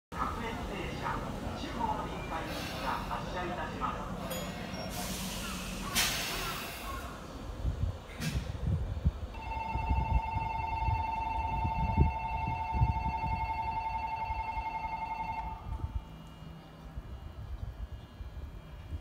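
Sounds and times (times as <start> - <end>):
electric train humming: 0.2 - 19.0
electronic departure bell ringing: 9.4 - 15.7.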